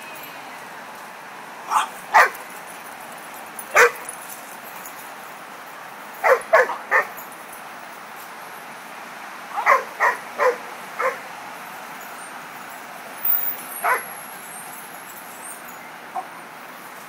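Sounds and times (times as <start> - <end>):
steady background noise: 0.0 - 17.0
dog barking: 1.7 - 2.4, 3.7 - 4.0, 6.2 - 7.2, 9.6 - 11.2, 13.8 - 14.0.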